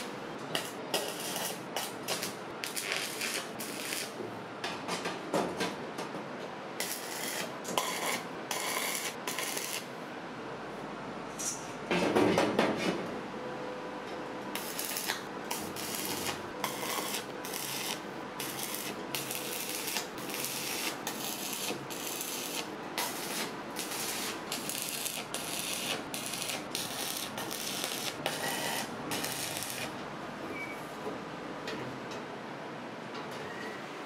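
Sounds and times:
arc welding crackling and hissing: 0.0 - 4.2, 6.8 - 9.9, 14.5 - 30.0.

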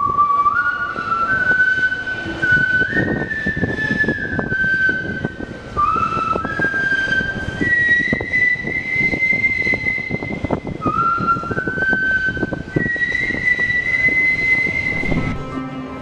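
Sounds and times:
flute-like melody: 0.0 - 16.0.

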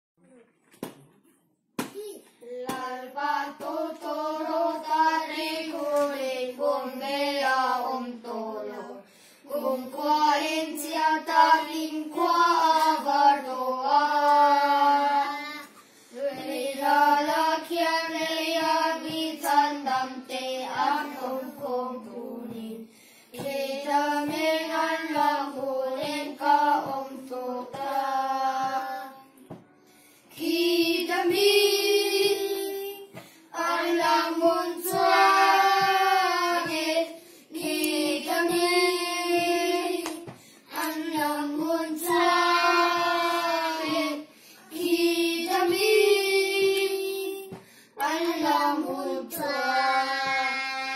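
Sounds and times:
children singing a hymn: 2.8 - 29.6, 30.3 - 50.9.

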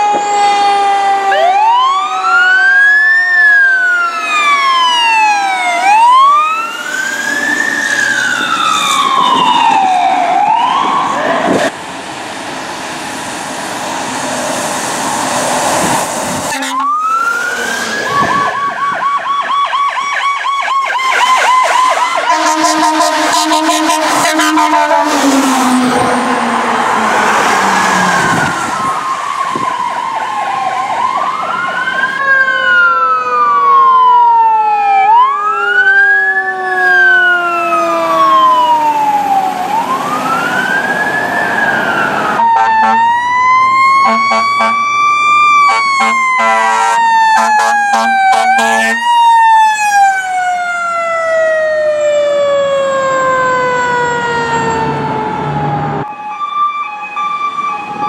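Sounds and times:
electronic siren wailing: 0.0 - 11.7, 16.2 - 58.0
mechanical siren winding down: 0.0 - 11.7, 15.8 - 58.0
air horn blasts: 16.5 - 17.0, 22.2 - 25.4, 42.4 - 43.2, 44.0 - 44.9, 45.6 - 49.1.

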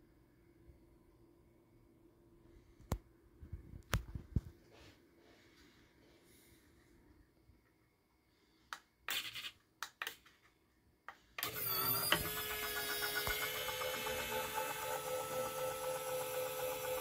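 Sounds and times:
linear actuator motor whine: 11.4 - 17.0.

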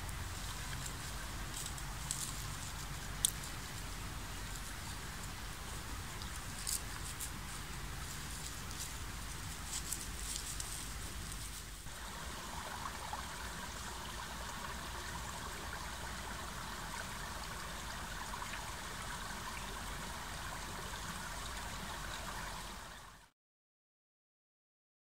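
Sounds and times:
rustling in leaf litter: 0.0 - 18.4
brook trickling: 0.0 - 23.3.

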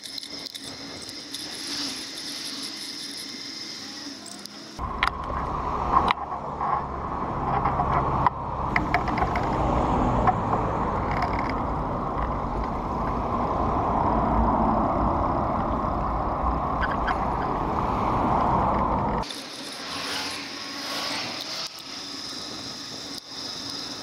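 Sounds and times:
road and tyre noise: 0.0 - 24.0
small rattling clicks: 11.0 - 12.8.

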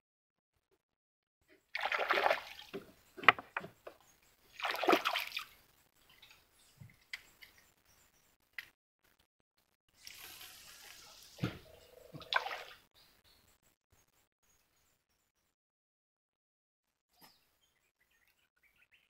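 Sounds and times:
water sloshing against boat: 1.8 - 5.6, 11.4 - 12.8.

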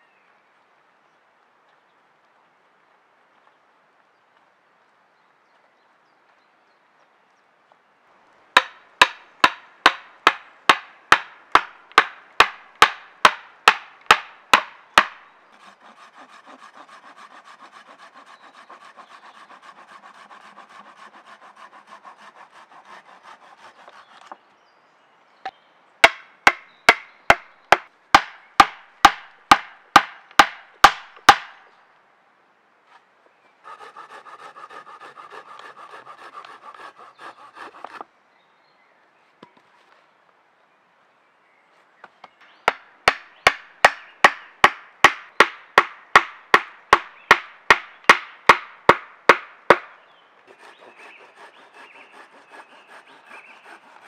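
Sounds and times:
tool rasping wood: 15.6 - 24.4, 33.6 - 38.0, 50.5 - 54.0.

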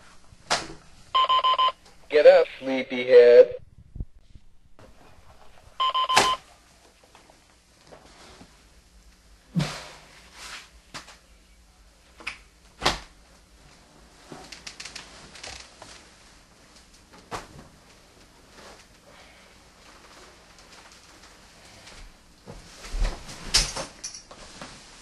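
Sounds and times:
soft clicks and rustles: 19.8 - 25.0.

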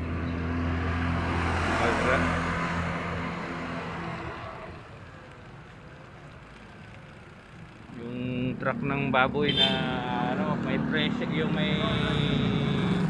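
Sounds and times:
vehicle passing by: 0.0 - 5.0, 8.5 - 13.0
street noise: 0.0 - 13.0.

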